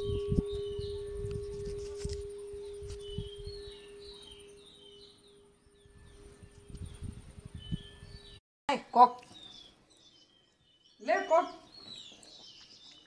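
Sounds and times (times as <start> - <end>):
temple bell ringing: 0.0 - 6.8
birds chirping: 0.0 - 13.0.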